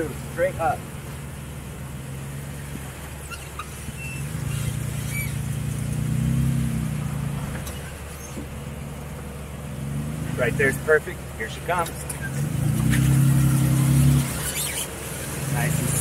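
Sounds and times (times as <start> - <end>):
car engine pulling at low speed: 0.0 - 16.0.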